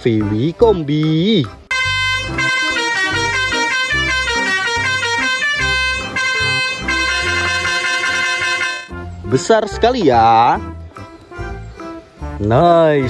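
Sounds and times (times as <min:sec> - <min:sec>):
buzzy synthesized melody: 0:01.7 - 0:09.0
bass line: 0:01.7 - 0:10.8.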